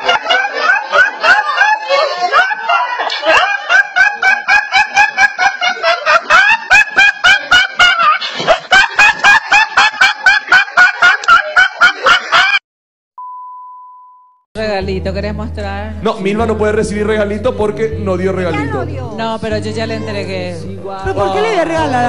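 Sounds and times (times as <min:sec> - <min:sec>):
boy laughing uncontrollably: 0:00.0 - 0:12.6.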